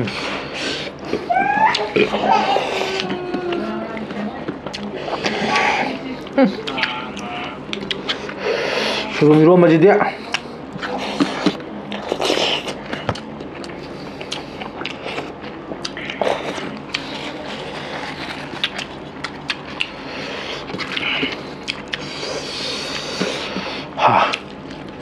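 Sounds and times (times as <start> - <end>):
wet chewing and lip smacks: 3.0 - 5.6, 6.2 - 8.4, 10.2 - 25.0.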